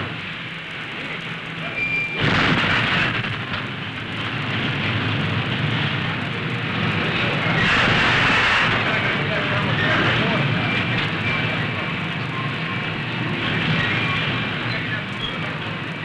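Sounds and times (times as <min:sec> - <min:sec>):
deep underwater explosion rumble: 0:01.8 - 0:12.0.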